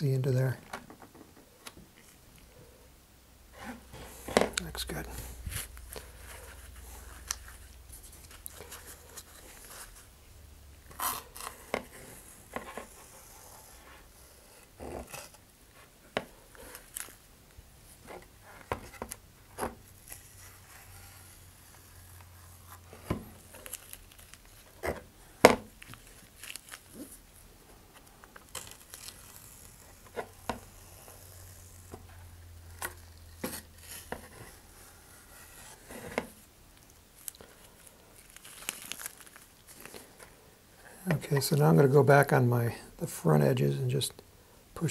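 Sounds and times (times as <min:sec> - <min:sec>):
paper crinkling: 0:20.0 - 0:25.1, 0:25.7 - 0:27.2, 0:27.9 - 0:32.0, 0:36.8 - 0:40.3.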